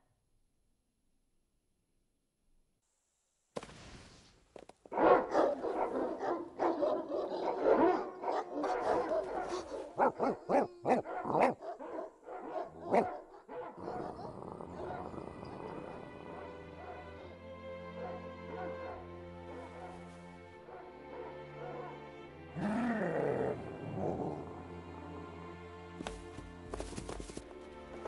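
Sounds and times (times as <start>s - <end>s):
dogs barking: 4.9s - 17.3s, 18.0s - 23.3s.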